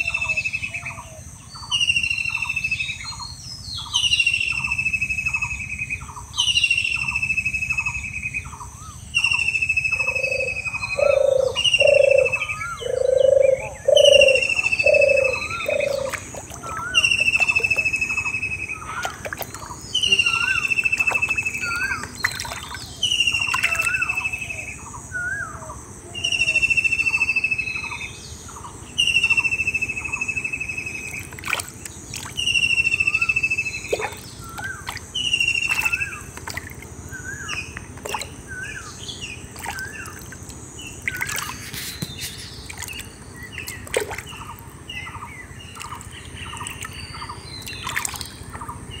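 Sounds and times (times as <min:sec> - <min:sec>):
bird chirps: 0:00.0 - 0:25.6, 0:26.2 - 0:31.5, 0:32.1 - 0:49.0
splashes in shallow water: 0:15.5 - 0:24.3, 0:31.0 - 0:38.7, 0:39.4 - 0:45.0, 0:45.6 - 0:48.7.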